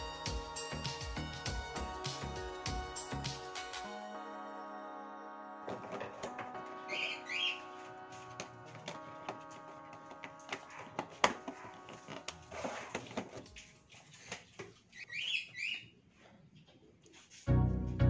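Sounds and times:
soft background music: 0.0 - 11.1, 17.5 - 18.0
plastic tubs clicking and knocking: 8.4 - 14.8.

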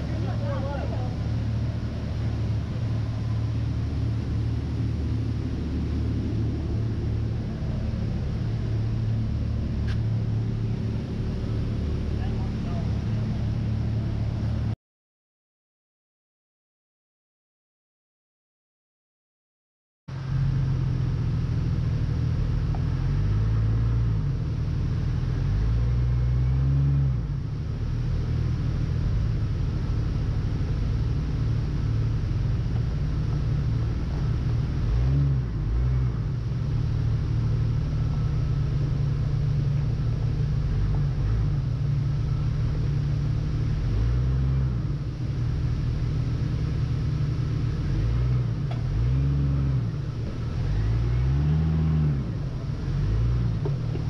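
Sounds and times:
car engine revving: 20.2 - 54.0.

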